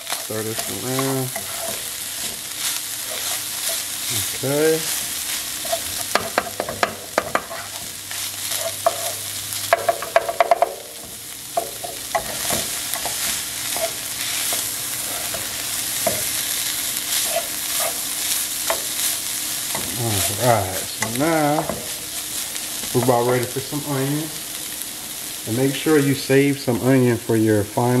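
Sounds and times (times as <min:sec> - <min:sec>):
utensil stirring meat in a pan: 0:00.0 - 0:24.5
sizzle of frying: 0:00.0 - 0:28.0
utensil knocking against pan: 0:06.1 - 0:07.5, 0:09.7 - 0:10.8.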